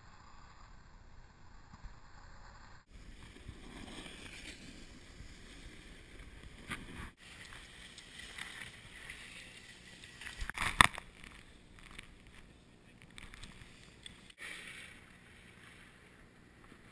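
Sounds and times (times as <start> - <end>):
snowboard scraping on snow: 3.0 - 7.2.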